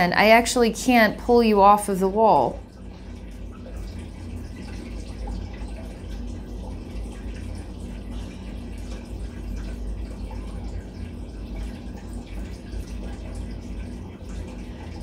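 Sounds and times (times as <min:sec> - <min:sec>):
faint hum and hiss: 0:00.0 - 0:15.0.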